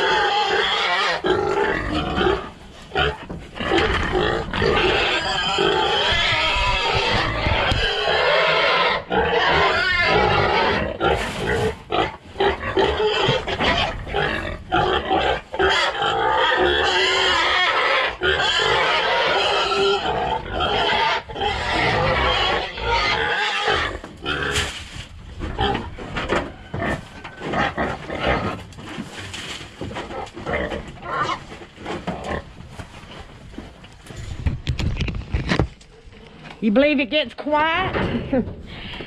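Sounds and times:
hogs squealing: 0:03.9 - 0:10.9.

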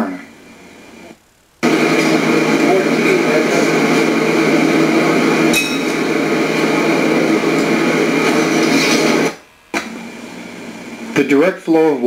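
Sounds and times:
pressure washer running: 0:01.6 - 0:11.3.

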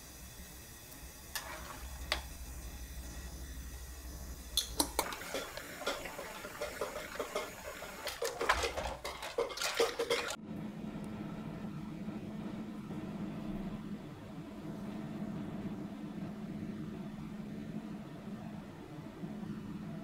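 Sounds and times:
mussels boiling bubbling: 0:00.0 - 0:10.4
shells clattering in pan: 0:04.6 - 0:10.4
wooden spoon knocking pan: 0:05.3 - 0:10.4.

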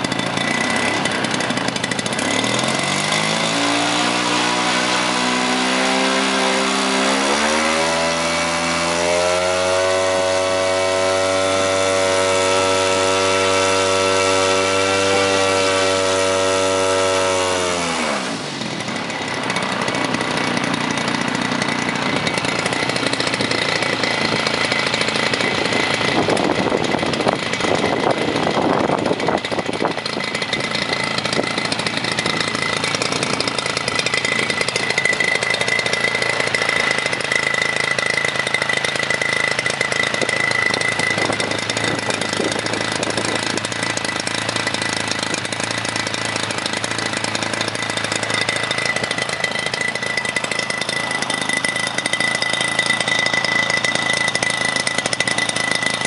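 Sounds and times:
two-stroke engine running: 0:00.0 - 0:56.0
steady high propeller tone: 0:18.3 - 0:56.0.

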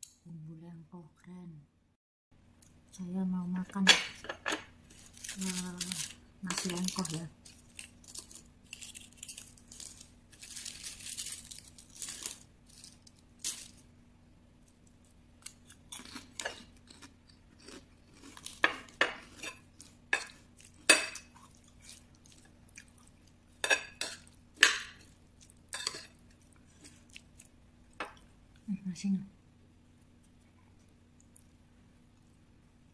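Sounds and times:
crackers rustling and crunching: 0:04.8 - 0:13.9, 0:14.5 - 0:28.4.

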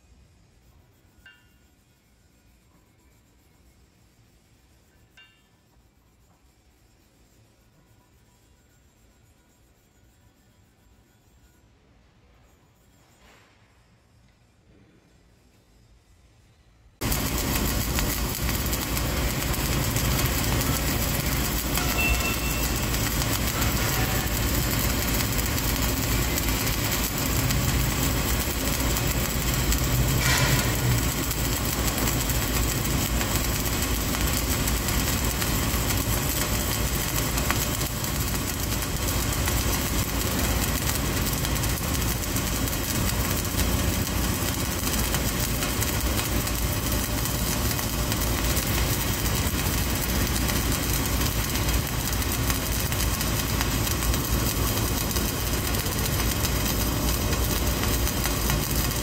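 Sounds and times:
welding arc crackling hiss: 0:17.0 - 0:59.0.

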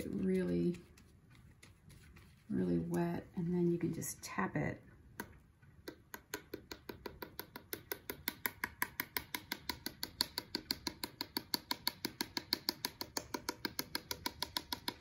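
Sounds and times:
paintbrush tapping against jar: 0:05.2 - 0:15.0.

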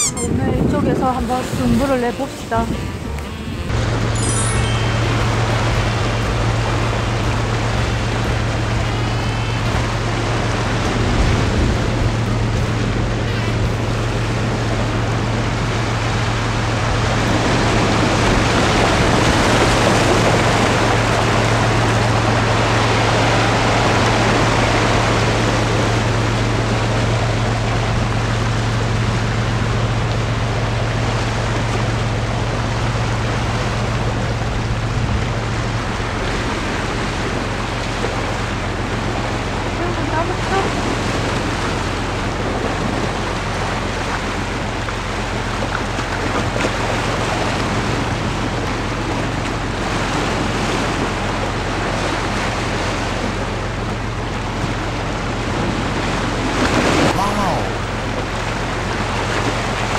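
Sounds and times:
wind buffeting microphone: 0:00.3 - 0:02.9
waves washing over rocks: 0:03.8 - 0:59.9.

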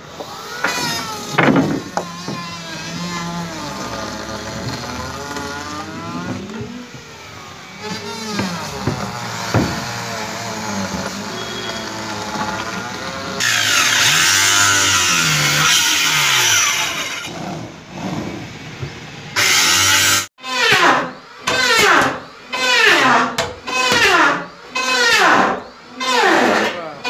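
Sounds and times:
electric power tool whining: 0:00.0 - 0:17.4.

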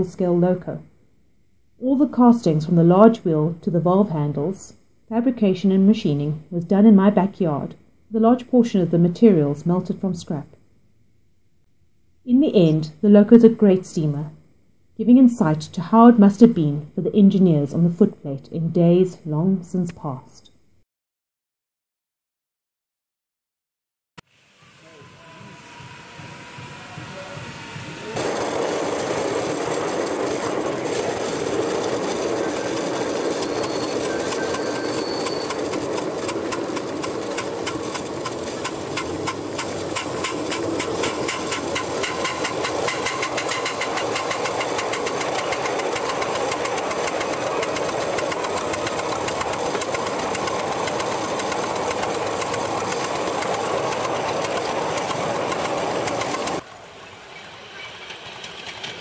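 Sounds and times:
model steam locomotive exhaust: 0:24.3 - 0:59.0.

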